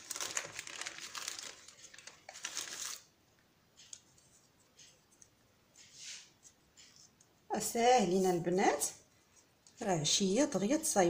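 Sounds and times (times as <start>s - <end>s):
baking paper rustling and crinkling: 0.0s - 3.1s.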